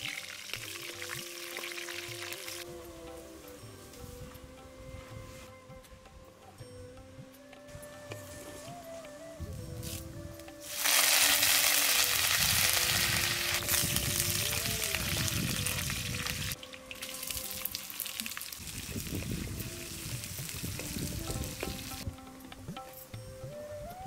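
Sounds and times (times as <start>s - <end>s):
food sizzling in hot oil: 0.0s - 2.6s, 10.6s - 22.0s.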